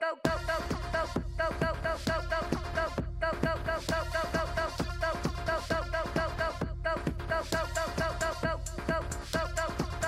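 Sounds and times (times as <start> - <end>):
electronic dance music: 0.2 - 10.0.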